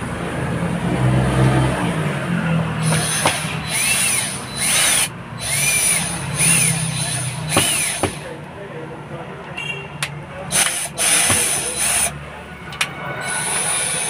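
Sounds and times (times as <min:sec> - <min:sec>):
cordless drill whining in bursts: 0:02.8 - 0:08.3, 0:10.5 - 0:12.2, 0:13.2 - 0:14.0.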